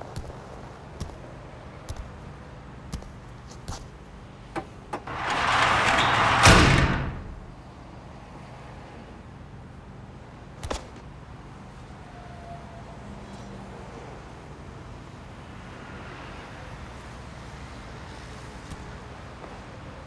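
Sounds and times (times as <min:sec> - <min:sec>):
heavy thud: 0:05.0 - 0:07.6.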